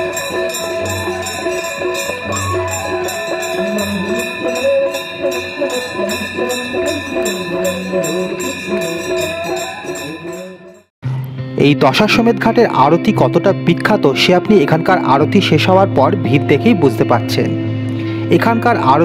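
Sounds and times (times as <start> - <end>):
jingling percussion: 0.0 - 10.9
ringing tones: 0.0 - 10.9.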